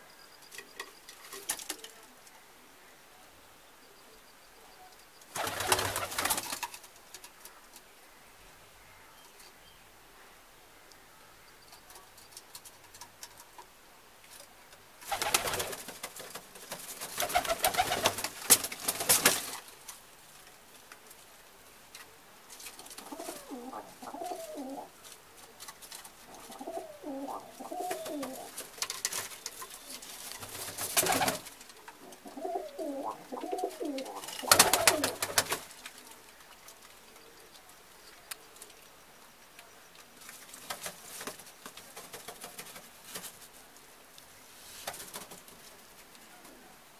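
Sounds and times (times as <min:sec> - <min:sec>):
pigeons cooing: 0:22.9 - 0:25.0, 0:26.2 - 0:28.6, 0:30.8 - 0:35.6.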